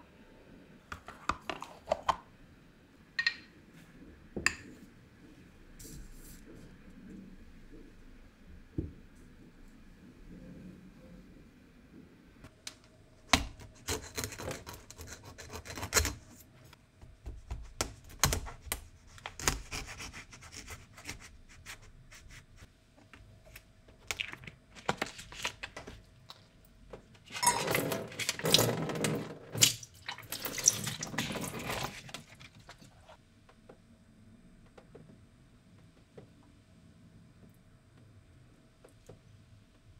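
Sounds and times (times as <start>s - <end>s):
water splashing into sink: 27.4s - 32.2s.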